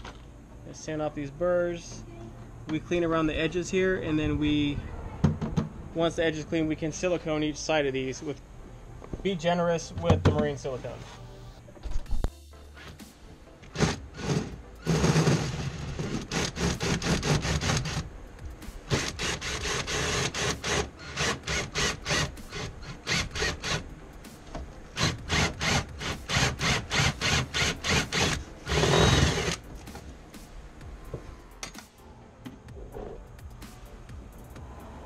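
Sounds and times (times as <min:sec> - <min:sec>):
power drill with hole saw: 0:13.7 - 0:18.0, 0:18.9 - 0:23.8, 0:25.0 - 0:29.6.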